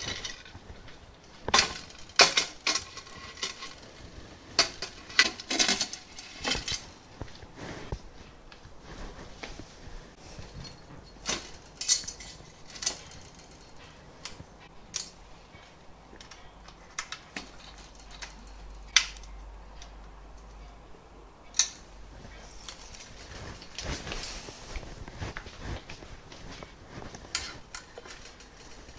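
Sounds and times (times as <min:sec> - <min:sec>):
aluminium rail parts clinking: 0:00.0 - 0:07.0, 0:10.4 - 0:20.8, 0:21.4 - 0:24.1, 0:27.0 - 0:28.9.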